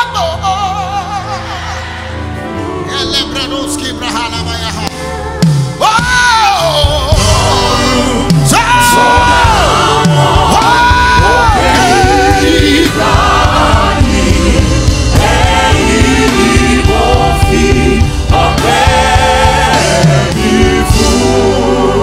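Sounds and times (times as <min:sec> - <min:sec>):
gospel band playing: 0:00.0 - 0:22.0
backing vocals: 0:05.8 - 0:22.0.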